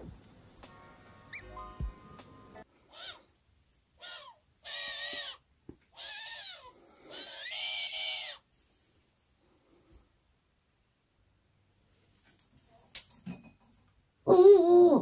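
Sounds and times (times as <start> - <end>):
owl harsh calls: 2.8 - 3.3, 4.0 - 8.4.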